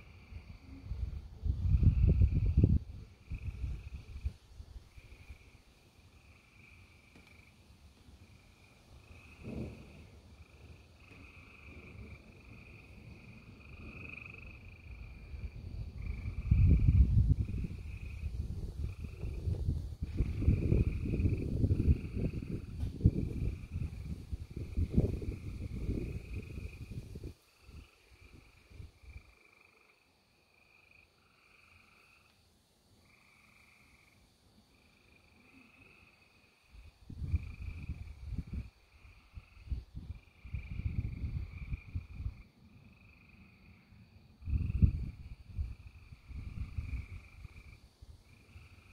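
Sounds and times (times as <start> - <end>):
frogs trilling: 10.4 - 19.4, 20.2 - 32.3, 33.0 - 48.9.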